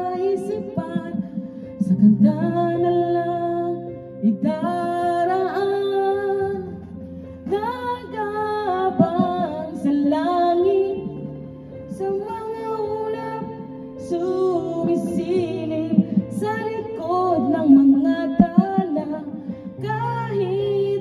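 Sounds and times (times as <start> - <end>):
instrumental backing music with guitar: 0.0 - 21.0
woman singing a ballad: 0.0 - 21.0.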